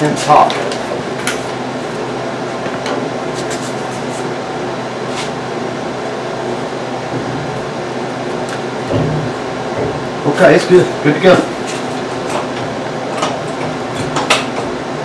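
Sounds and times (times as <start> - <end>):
steady mechanical hum: 0.0 - 15.0.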